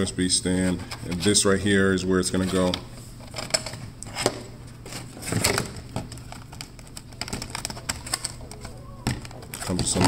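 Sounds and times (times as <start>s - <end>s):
plastic packaging crinkling: 4.9s - 10.0s.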